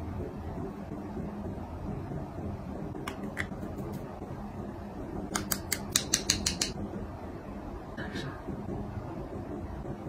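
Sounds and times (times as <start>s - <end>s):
makeup tools clicking: 5.4s - 6.8s.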